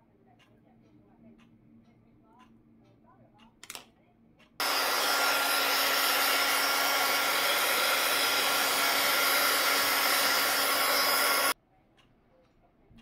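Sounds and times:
heat tool fan whirring: 4.6 - 11.6.

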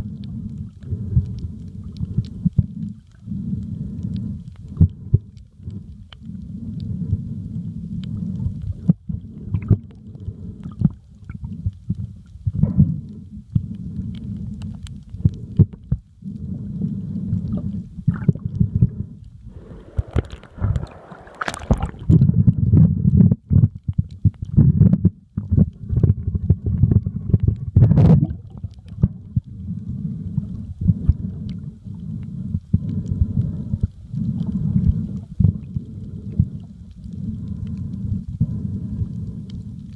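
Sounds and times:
sharp underwater clicks and crackles: 0.0 - 39.9
underwater rumble of moving water: 0.0 - 39.9
water rushing: 19.5 - 22.2.

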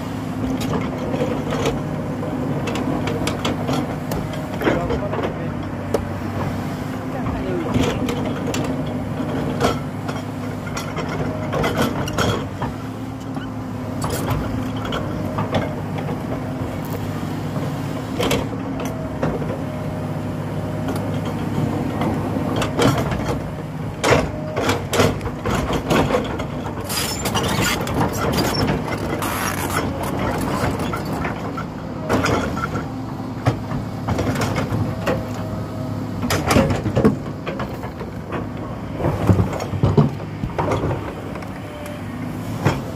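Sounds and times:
excavator diesel engine running: 0.0 - 42.9
hydraulic whine: 26.4 - 42.9.

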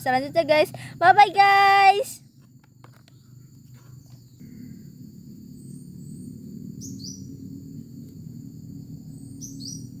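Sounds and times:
low steady hum: 0.0 - 10.0
bird chirping: 5.5 - 7.6, 9.0 - 10.0.

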